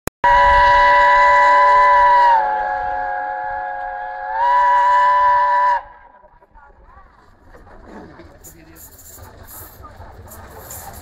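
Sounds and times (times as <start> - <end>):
steam locomotive whistle: 0.2 - 6.1.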